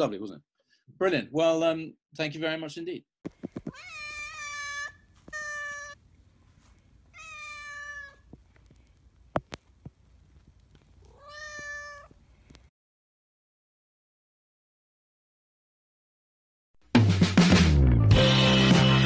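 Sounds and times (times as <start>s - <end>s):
cat meowing: 3.7s - 6.0s, 7.1s - 8.3s, 11.0s - 12.2s.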